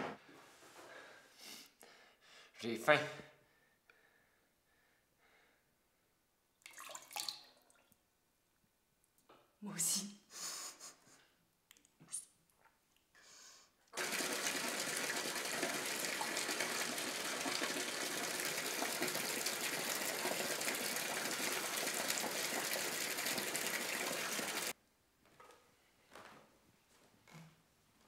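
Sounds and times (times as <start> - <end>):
water gushing from bathtub tap: 6.7 - 7.7, 14.0 - 24.8.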